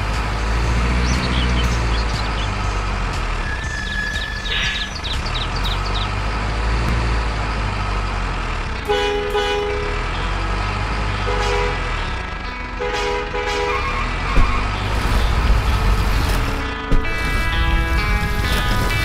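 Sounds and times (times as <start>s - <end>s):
truck engine running: 0.0s - 19.0s
two-tone truck horn blasts: 8.8s - 10.3s, 11.1s - 15.2s.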